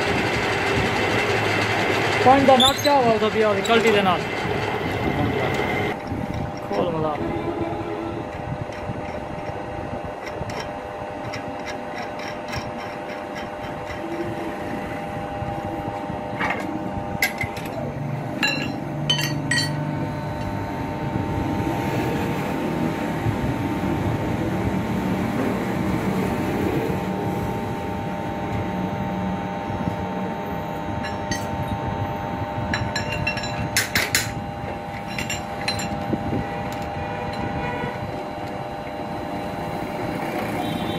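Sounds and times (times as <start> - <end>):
machine hum: 0.0 - 40.9
metal clinks and knocks: 18.4 - 19.8, 32.7 - 34.4, 35.0 - 36.1.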